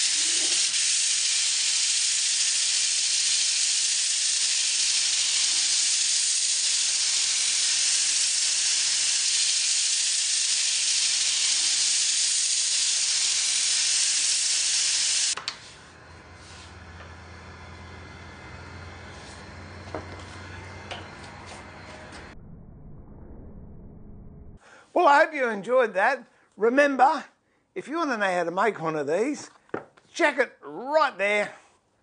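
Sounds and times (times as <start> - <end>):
sanding hiss on lathe: 0.0 - 22.3.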